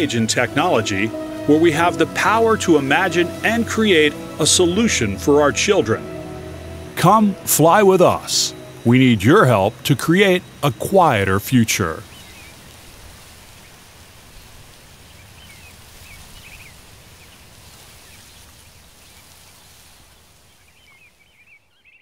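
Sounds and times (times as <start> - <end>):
steady hiss: 0.0 - 21.5
faint bird chirps: 11.8 - 12.7, 13.6 - 22.0.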